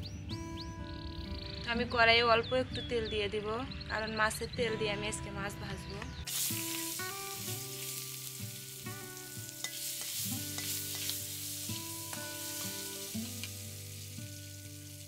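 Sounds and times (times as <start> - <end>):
fish fat sizzling in a pan: 6.3 - 15.0
metal spatula scraping a pan: 9.6 - 13.0.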